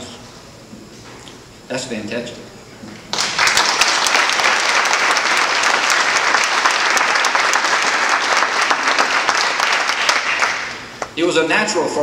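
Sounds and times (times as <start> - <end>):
audience applauding: 3.1 - 11.0.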